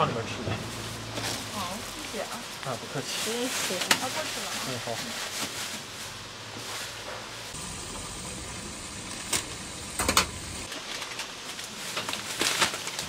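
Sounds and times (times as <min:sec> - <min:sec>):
street background noise: 0:00.0 - 0:12.3
packaging clicks and rustles: 0:09.3 - 0:13.0.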